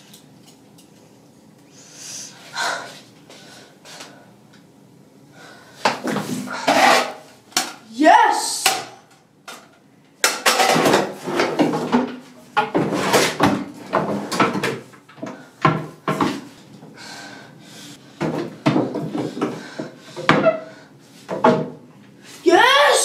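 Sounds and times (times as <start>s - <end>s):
drawers sliding scrapes: 12.8s - 14.4s.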